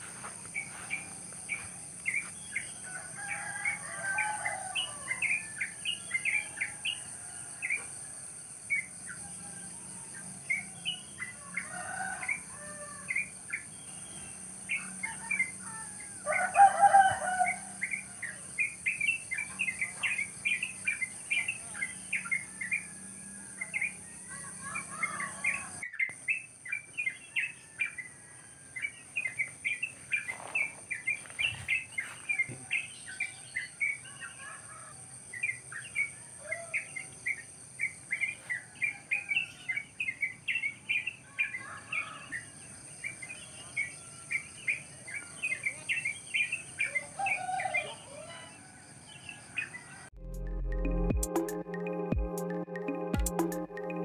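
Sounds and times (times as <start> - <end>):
rooster crowing: 0.0 - 8.3, 9.2 - 13.3, 14.7 - 18.7, 21.3 - 25.9, 38.4 - 39.8, 41.3 - 42.8, 46.8 - 50.1
wild birds chirping: 0.0 - 50.2.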